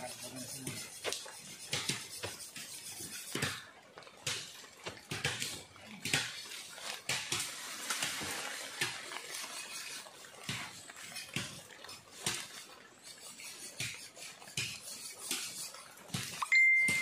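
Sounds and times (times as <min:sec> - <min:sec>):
leaves rustling: 0:00.0 - 0:16.2
bamboo poles knocking together: 0:00.7 - 0:09.3.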